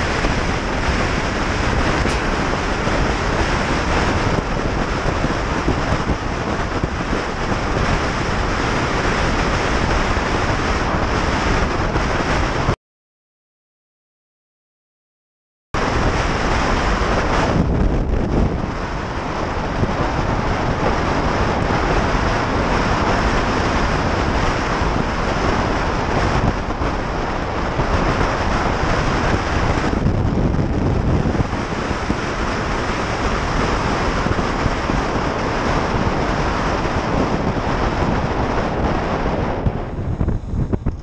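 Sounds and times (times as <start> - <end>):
road noise: 0.0 - 12.8, 15.8 - 41.0
wind noise on microphone: 0.0 - 12.8, 15.8 - 41.0.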